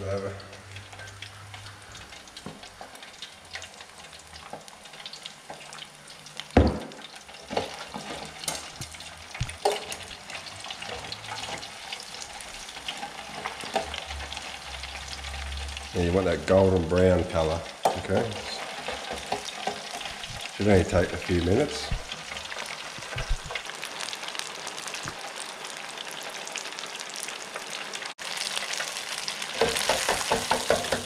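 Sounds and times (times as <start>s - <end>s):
fish frying in hot oil: 0.0s - 31.0s
oil popping: 17.8s - 23.8s.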